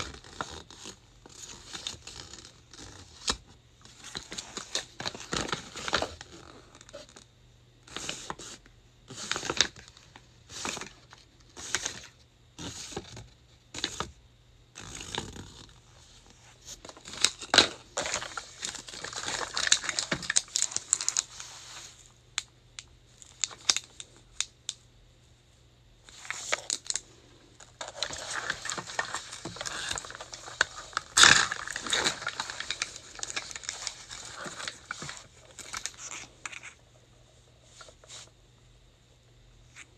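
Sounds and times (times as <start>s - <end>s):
packaging crinkling and tearing: 0.0s - 7.2s, 7.9s - 13.2s, 14.8s - 15.8s, 16.6s - 21.4s, 23.2s - 24.5s, 26.1s - 36.8s
faint low hum: 0.0s - 39.9s.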